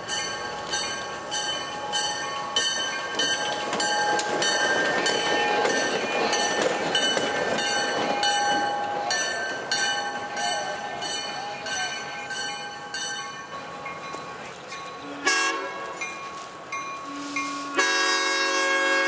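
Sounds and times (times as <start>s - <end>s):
locomotive bell ringing: 0.0s - 19.0s
locomotive passing: 0.0s - 19.0s.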